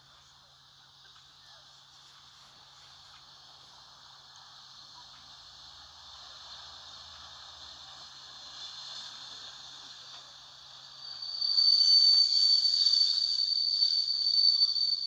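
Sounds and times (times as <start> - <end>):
steam locomotive hissing steam: 0.0 - 15.0
high whistling tone: 10.1 - 15.0.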